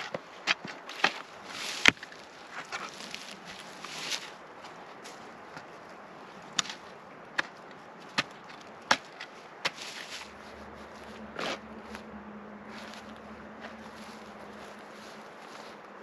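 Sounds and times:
digging tool striking ground: 0.0 - 4.3, 6.5 - 12.1.

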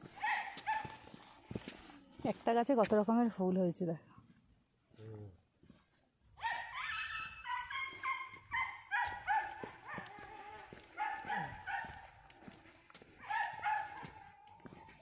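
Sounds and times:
animal high-pitched calls: 6.4 - 11.5.

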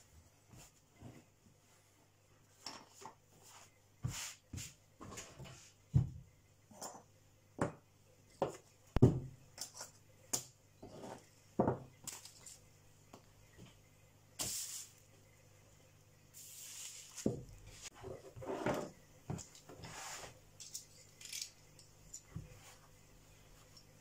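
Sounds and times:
tools knocking on a table: 11.6 - 11.9.

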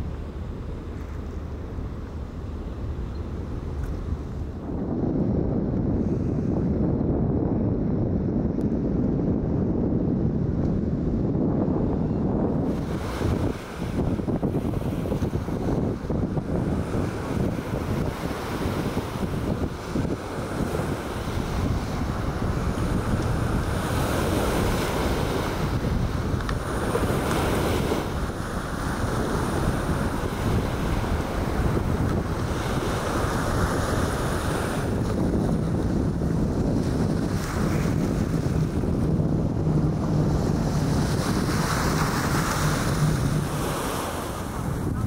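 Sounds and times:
wind buffeting the microphone: 0.0 - 45.0
waves washing on shore: 12.0 - 45.0.

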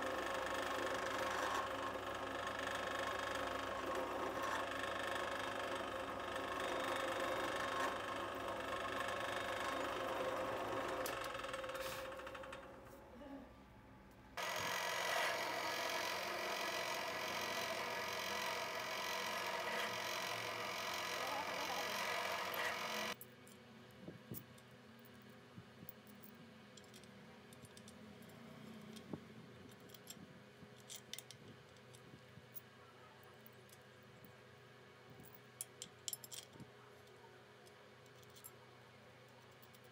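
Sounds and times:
drill press drilling metal: 0.0 - 12.7, 14.4 - 23.2
metal parts clinking: 35.3 - 37.2, 38.0 - 38.5.

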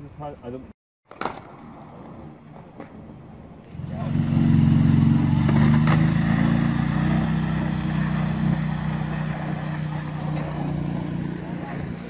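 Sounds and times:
quad bike engine running: 3.7 - 12.0.

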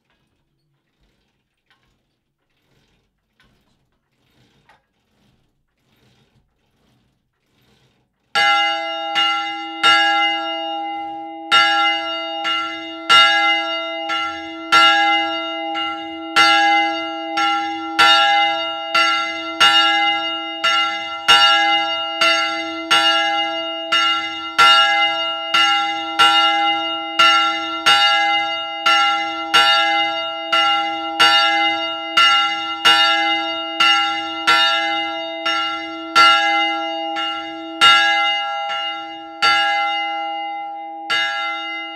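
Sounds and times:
church bell ringing: 8.4 - 41.9.

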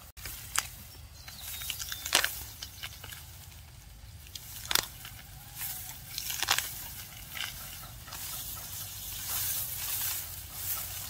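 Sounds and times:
sharp snaps and crackles: 0.0 - 11.0.

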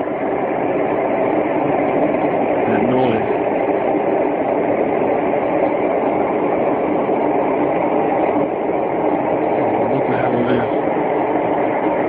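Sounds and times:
loud rumbling drone: 0.0 - 12.0.

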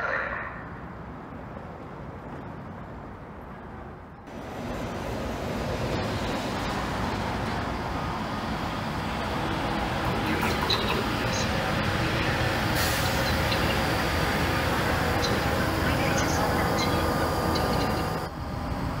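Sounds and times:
diesel locomotive engine rumbling: 4.2 - 19.0.

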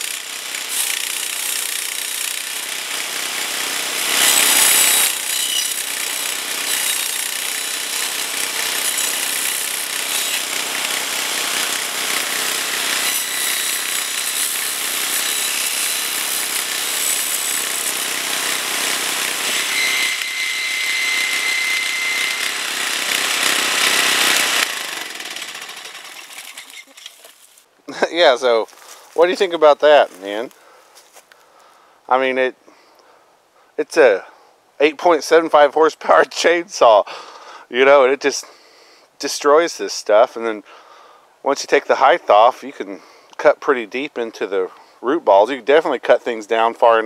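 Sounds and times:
trimmer engine running hard: 2.4 - 5.3, 6.2 - 26.0.

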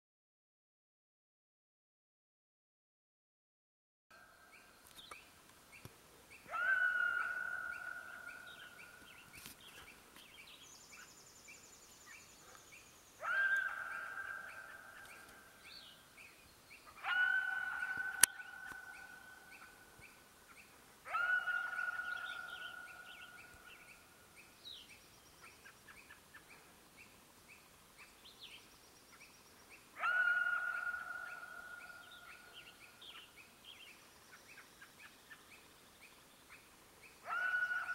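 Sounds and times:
faint birdsong chirps: 4.1 - 37.9
coyote barking and howling: 6.4 - 9.0, 13.2 - 15.4, 16.9 - 19.9, 21.0 - 23.9, 30.0 - 32.7, 37.2 - 37.9.

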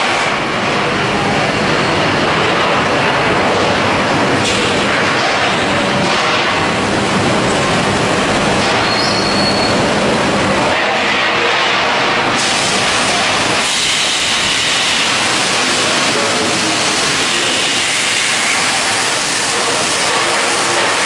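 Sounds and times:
machinery hissing din: 0.0 - 21.0.

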